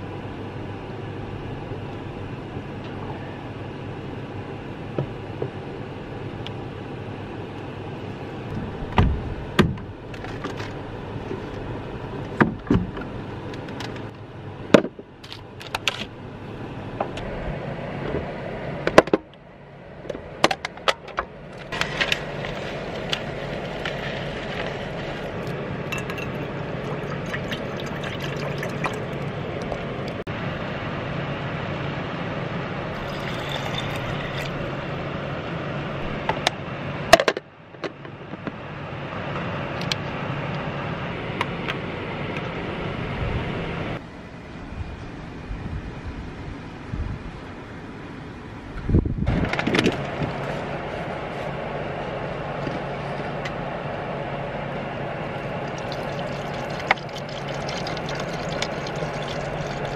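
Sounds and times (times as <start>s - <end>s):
steady low hum: 0.0s - 59.9s
water pouring onto rice: 55.6s - 59.9s.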